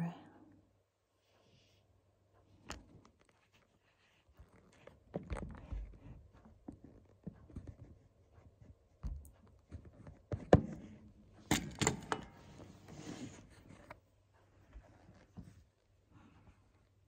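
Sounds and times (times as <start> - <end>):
handling clicks and knocks: 9.1 - 12.9.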